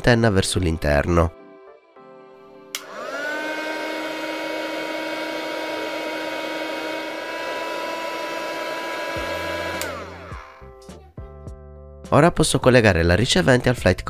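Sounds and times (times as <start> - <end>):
heat gun fan whining: 2.7 - 10.7.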